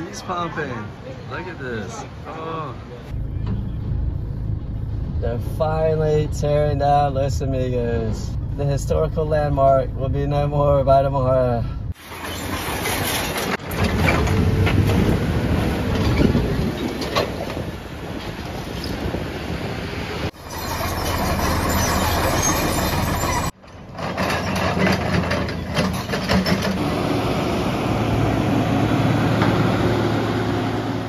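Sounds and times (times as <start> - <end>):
excavator diesel engine: 20.3 - 31.0
roller compactor engine: 20.3 - 31.0.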